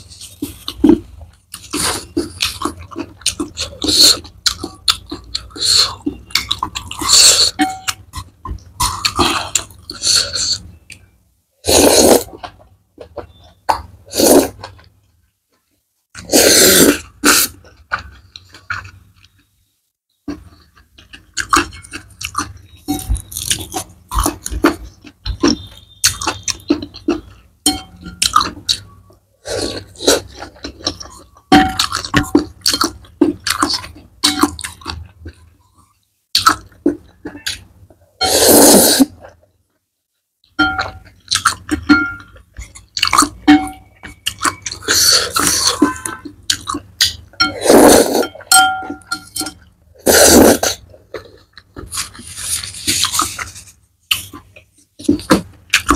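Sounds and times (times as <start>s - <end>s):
wet chewing and smacking: 0.1s - 11.2s, 17.0s - 19.5s, 20.2s - 29.2s, 29.8s - 38.0s, 40.4s - 47.5s, 50.7s - 55.9s
slurping noodles: 11.6s - 12.4s, 14.1s - 14.6s, 16.2s - 17.6s, 38.2s - 39.2s, 44.7s - 46.2s, 47.5s - 48.4s, 50.0s - 51.3s.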